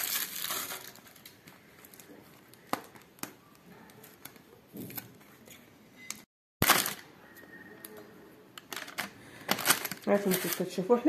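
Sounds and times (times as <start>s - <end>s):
foil and cardboard packaging crinkling: 0.0s - 5.1s, 8.8s - 11.0s.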